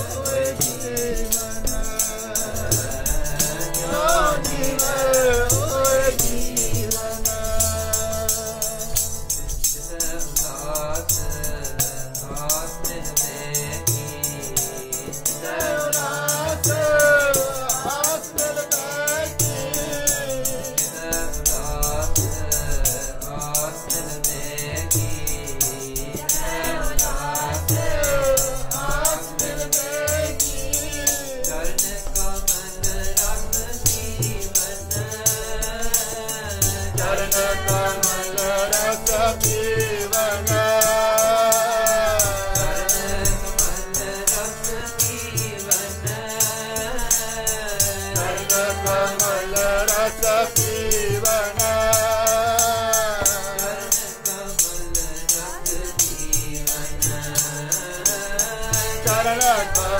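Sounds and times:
person singing a hymn: 0:00.0 - 0:08.9, 0:12.3 - 0:59.9
harmonium: 0:00.0 - 0:59.9.

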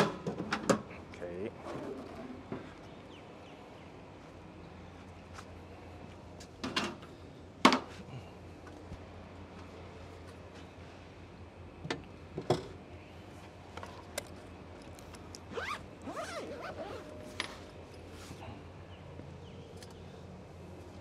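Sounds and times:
low background hum: 0:00.0 - 0:21.0
bag zipper rasping: 0:15.5 - 0:17.1.

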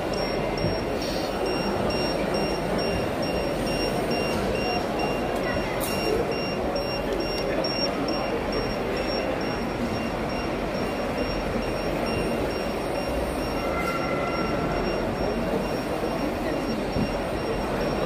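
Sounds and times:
busy exhibition hall din: 0:00.0 - 0:18.0.

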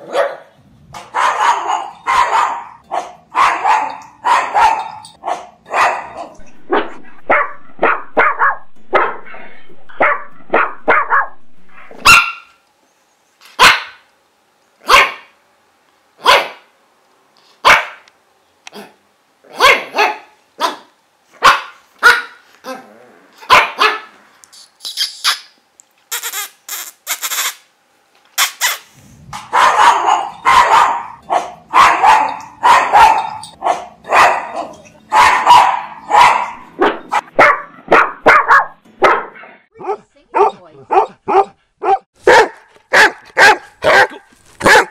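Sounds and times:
dog barking: 0:00.0 - 0:00.5, 0:01.1 - 0:12.5, 0:13.6 - 0:14.0, 0:14.8 - 0:15.4, 0:16.2 - 0:16.7, 0:17.6 - 0:18.0, 0:19.5 - 0:22.4, 0:23.4 - 0:24.1, 0:29.5 - 0:44.9.

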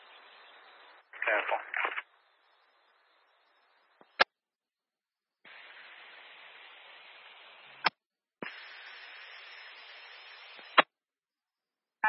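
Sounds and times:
radio squelch burst: 0:00.0 - 0:02.2, 0:05.5 - 0:10.9
radio static hiss: 0:00.0 - 0:04.3, 0:05.4 - 0:10.9.

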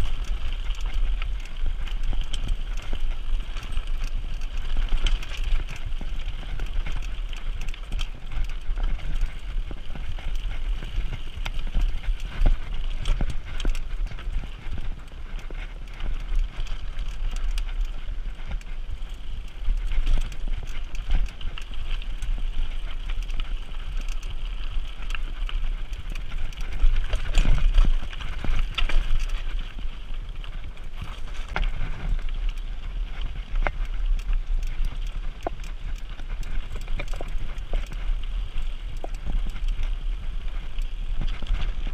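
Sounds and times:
mountain bike rattling: 0:00.0 - 0:41.9.

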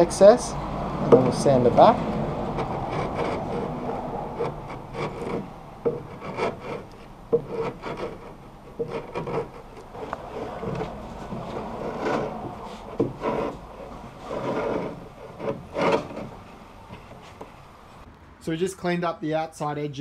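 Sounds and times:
chisel scraping wood: 0:01.0 - 0:17.6.

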